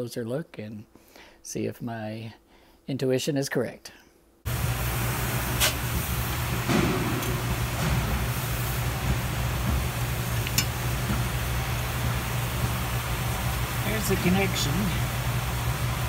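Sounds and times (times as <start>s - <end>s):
machinery humming and hissing: 4.5s - 16.0s.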